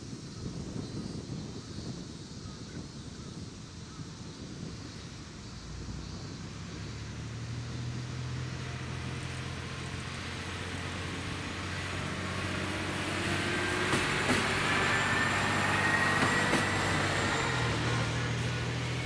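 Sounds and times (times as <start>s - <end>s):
diesel railcar passing: 3.6s - 19.0s
thin high brake squeal: 14.5s - 19.0s.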